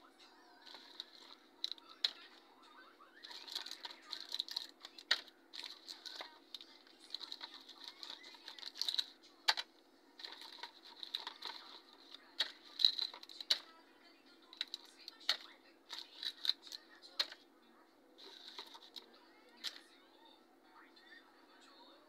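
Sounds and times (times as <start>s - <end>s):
candies clicking on plastic: 0.6s - 2.4s, 3.2s - 13.8s, 14.4s - 17.5s, 18.2s - 19.9s
crinkling candy wrappers: 0.6s - 2.4s, 3.2s - 13.8s, 14.4s - 17.4s, 18.2s - 19.9s.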